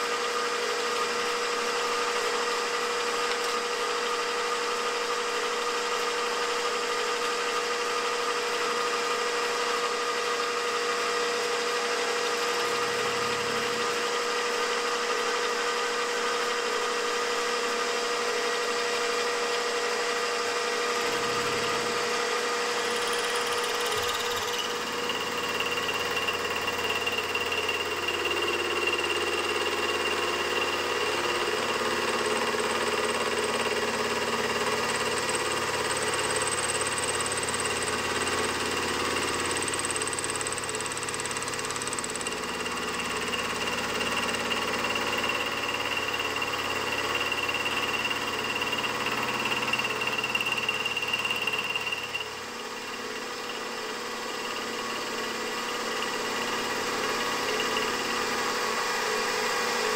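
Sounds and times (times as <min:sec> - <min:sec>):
milling machine cutting metal: 0:00.9 - 0:59.9
high motor whine: 0:21.0 - 0:28.1.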